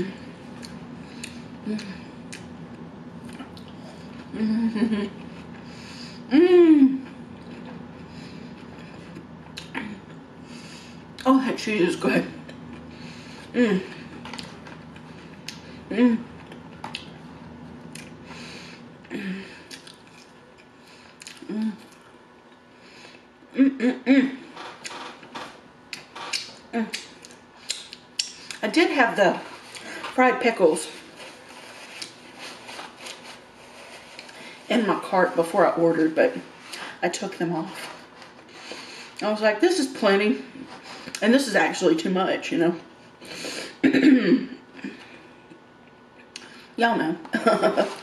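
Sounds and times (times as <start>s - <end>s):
woman humming mmm: 1.6s - 2.4s, 4.0s - 5.3s, 6.3s - 7.2s, 13.5s - 14.1s, 15.6s - 16.4s, 21.4s - 22.0s, 23.5s - 24.5s
woman humming closed-mouth: 4.3s - 5.1s, 6.3s - 7.2s, 23.5s - 24.4s
woman chewing: 12.4s - 18.6s, 19.6s - 23.2s
wet mouth clicks: 26.0s - 28.6s.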